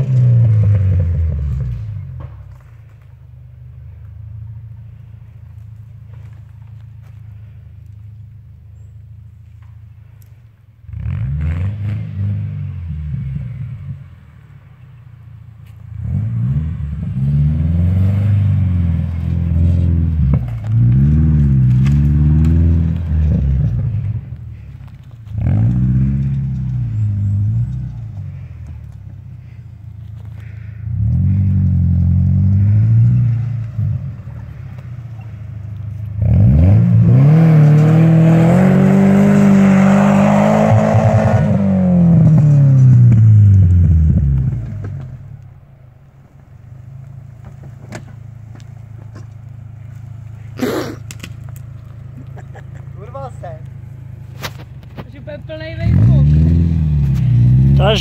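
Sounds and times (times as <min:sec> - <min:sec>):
car engine revving: 0:10.8 - 0:14.8, 0:15.8 - 0:29.6, 0:30.2 - 0:45.7, 0:49.4 - 0:58.0.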